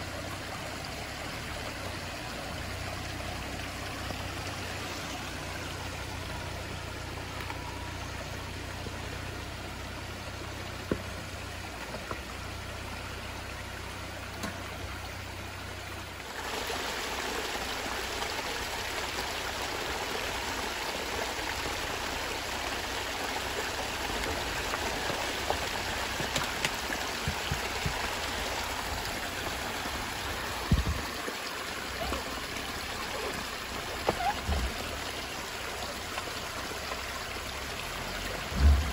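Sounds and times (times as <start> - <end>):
low engine hum: 0.0 - 16.7, 17.3 - 38.9
water rushing over rocks: 0.0 - 38.9.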